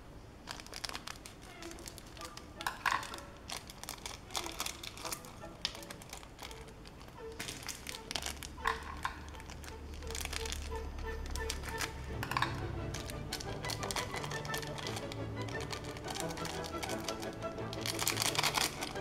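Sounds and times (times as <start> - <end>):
plastic sachets crinkling: 0.4 - 19.0
sachets tearing: 0.4 - 19.0.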